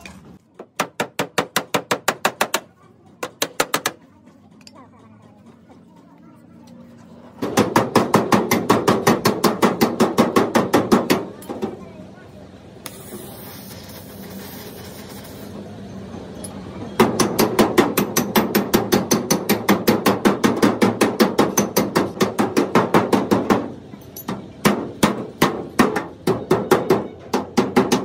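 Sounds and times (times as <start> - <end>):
hammer tapping sheet steel: 7.4 - 11.7, 17.0 - 28.0.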